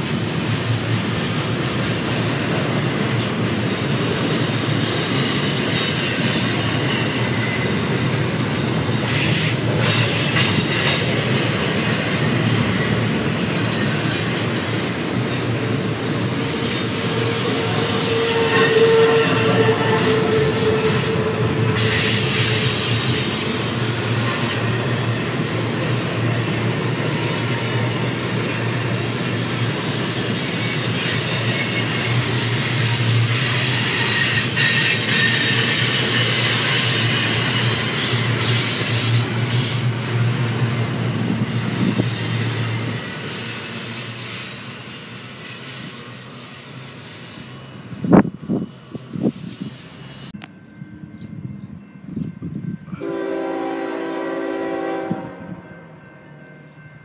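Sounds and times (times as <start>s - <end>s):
train cars rolling on rails: 0.0s - 57.0s
wheel squeal: 4.4s - 25.8s, 26.5s - 47.7s.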